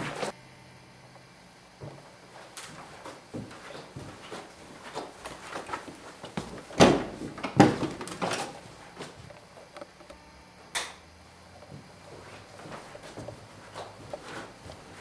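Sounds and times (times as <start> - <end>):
footsteps on wooden floor: 1.8 - 9.4, 11.7 - 15.0
door being handled: 6.7 - 8.6.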